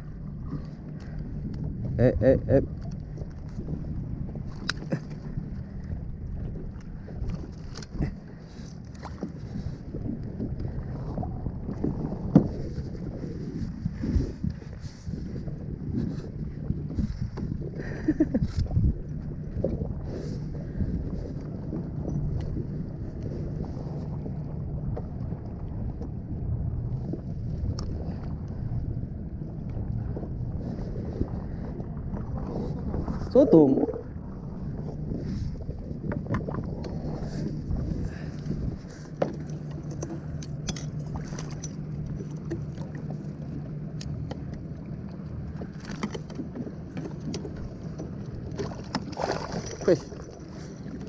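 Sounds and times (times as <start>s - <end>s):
steady low hum: 0.0s - 51.0s
water lapping against kayak hull: 0.0s - 51.0s
wind buffeting microphone: 0.0s - 51.0s
fishing tackle clicks and knocks: 4.5s - 5.2s, 39.2s - 42.9s, 45.6s - 49.8s.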